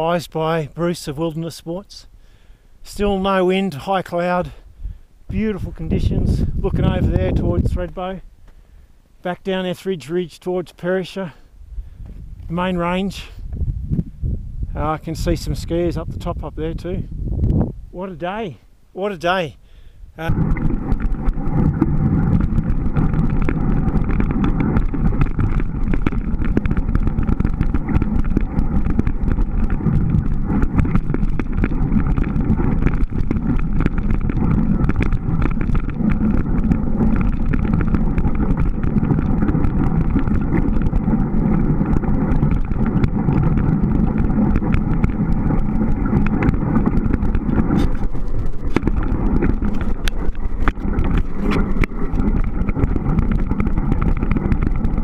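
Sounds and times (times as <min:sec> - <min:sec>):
bike tyres rolling over snow: 0:05.3 - 0:08.2, 0:20.2 - 0:55.0
bike rattling: 0:20.2 - 0:55.0.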